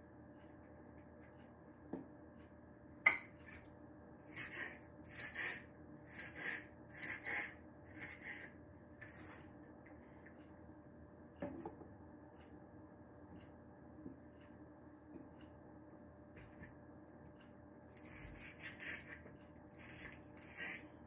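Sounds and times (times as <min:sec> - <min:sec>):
knife cutting on cutting board: 0:04.3 - 0:09.3.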